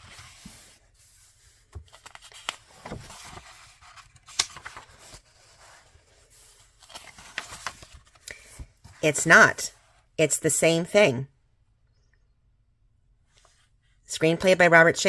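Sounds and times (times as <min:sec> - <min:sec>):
paper script handling: 0:01.3 - 0:08.6.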